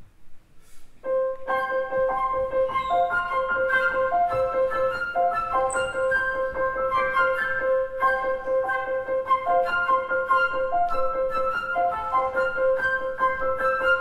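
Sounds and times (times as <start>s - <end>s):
piano melody: 1.0s - 14.0s
repeated high piano note: 1.4s - 6.8s.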